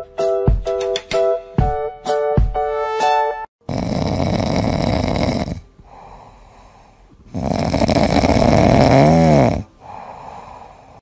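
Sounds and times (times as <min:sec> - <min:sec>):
cat snoring: 0:03.6 - 0:06.7, 0:07.3 - 0:11.0
cat breathing: 0:03.7 - 0:08.6, 0:09.6 - 0:11.0.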